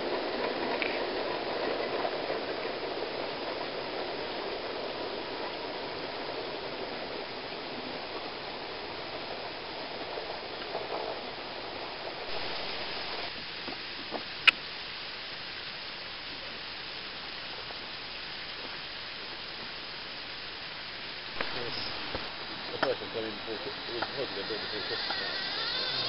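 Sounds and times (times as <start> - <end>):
model train wheels rumbling on rails: 0.0 - 14.2, 20.9 - 26.0.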